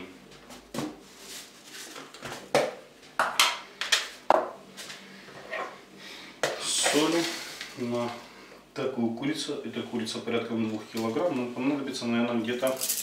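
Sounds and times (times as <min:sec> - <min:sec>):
kitchen items clicking and knocking: 0:12.6 - 0:13.0.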